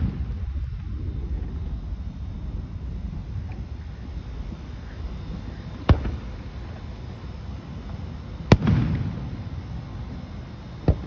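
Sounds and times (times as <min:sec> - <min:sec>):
firework bang: 0:00.0 - 0:00.6, 0:05.8 - 0:06.3, 0:08.5 - 0:09.3.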